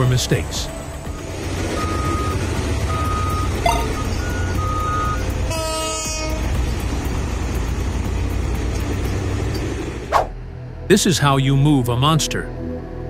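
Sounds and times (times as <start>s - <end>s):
heavy machinery engine rumble: 0.0s - 10.1s
back-up alarm beeping: 1.1s - 5.3s
horn: 5.5s - 6.5s.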